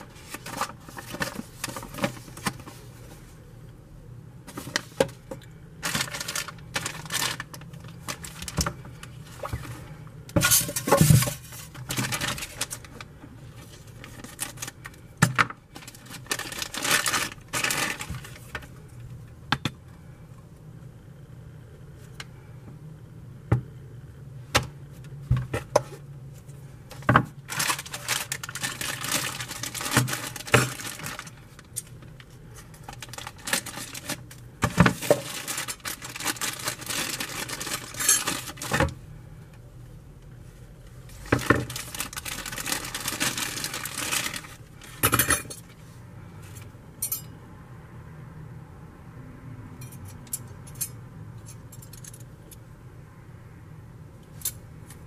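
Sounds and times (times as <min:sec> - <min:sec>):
plastic bag crinkling: 0:05.8 - 0:09.6, 0:10.4 - 0:15.0, 0:15.7 - 0:18.7, 0:27.4 - 0:38.9, 0:41.1 - 0:45.0.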